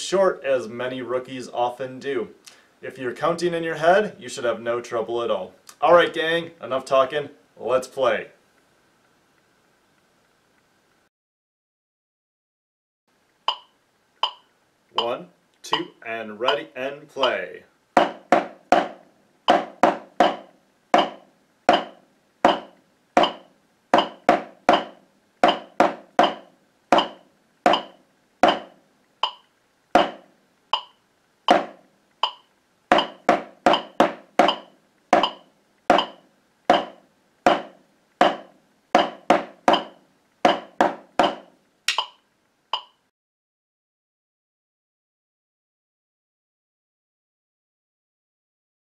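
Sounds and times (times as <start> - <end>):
metronome ticking: 13.5 - 17.4, 18.0 - 30.2, 30.8 - 36.9, 39.0 - 42.2, 42.8 - 43.0
drumsticks on practice pad: 15.0 - 17.4, 18.0 - 42.2.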